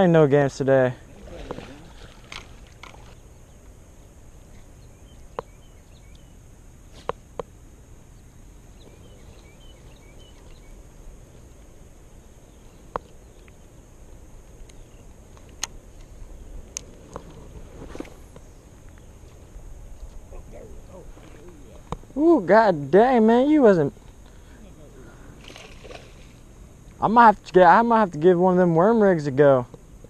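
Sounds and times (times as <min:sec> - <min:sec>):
low wind rumble: 0:00.0 - 0:28.2
high insect drone: 0:00.0 - 0:30.0
faint bird chirps: 0:04.4 - 0:07.0, 0:08.1 - 0:10.9, 0:14.7 - 0:15.2.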